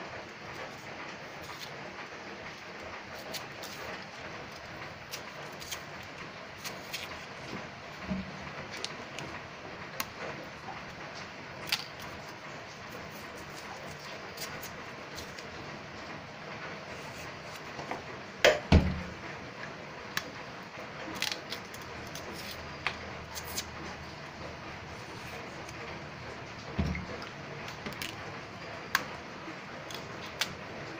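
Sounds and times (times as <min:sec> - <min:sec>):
knife scraping and cutting root: 0:01.4 - 0:01.8, 0:03.2 - 0:07.6, 0:11.6 - 0:15.5, 0:21.2 - 0:24.0, 0:24.9 - 0:25.8.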